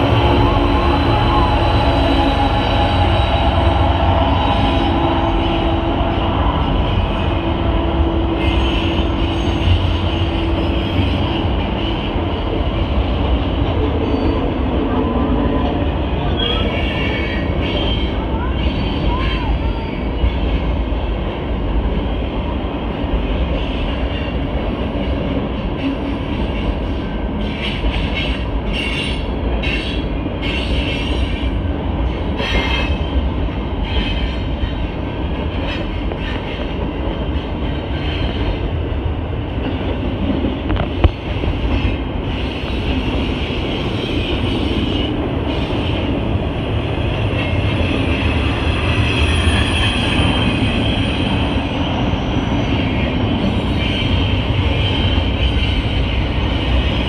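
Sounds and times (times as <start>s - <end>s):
freight train wheels rumbling: 0.0s - 57.0s
train wheels squealing: 14.0s - 14.6s, 47.3s - 56.8s.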